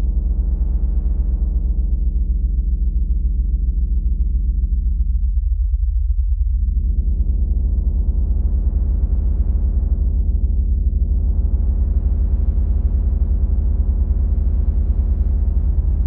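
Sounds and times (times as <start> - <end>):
synthesizer bass drone: 6.6 - 16.0.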